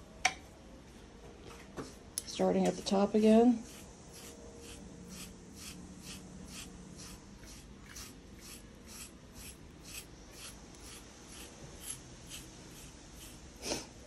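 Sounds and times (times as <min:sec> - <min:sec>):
carding knife raking through fur: 0:03.2 - 0:14.0.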